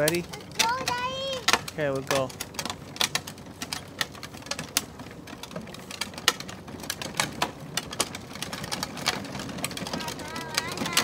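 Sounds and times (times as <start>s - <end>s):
plastic wheels crackling on grit: 0.0s - 11.0s.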